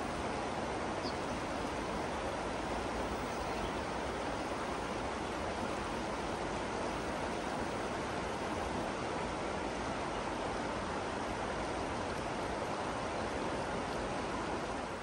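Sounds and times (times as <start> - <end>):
river flowing: 0.0 - 15.0.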